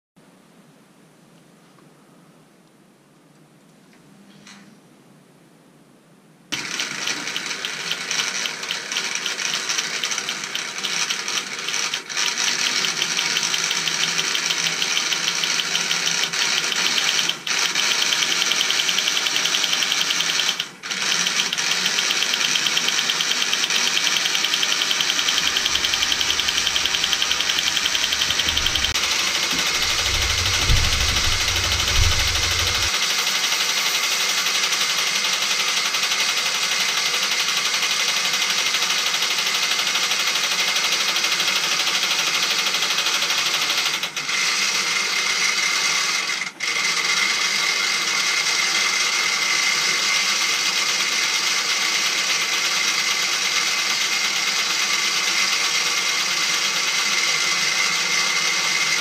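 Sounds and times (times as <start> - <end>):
electric motor and gears whirring: 6.6 - 33.0.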